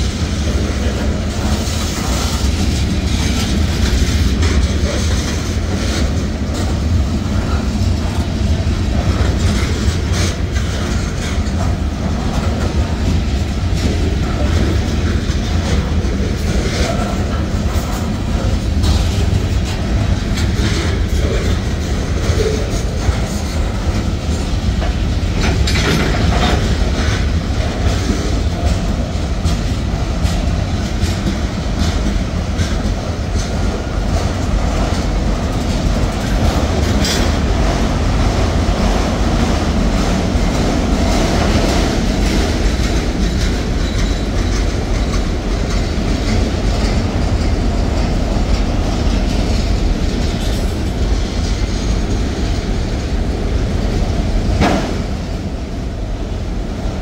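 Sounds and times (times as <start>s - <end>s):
train wheels rumbling: 0.0s - 57.0s
wheels clacking over rail joints: 0.0s - 57.0s.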